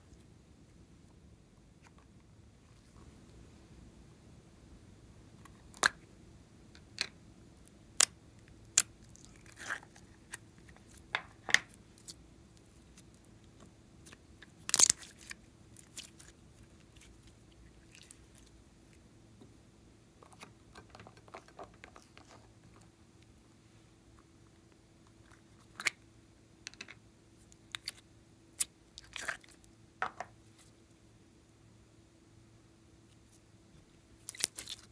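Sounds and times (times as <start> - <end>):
slime crackling squish: 14.0 - 18.5, 34.2 - 34.9.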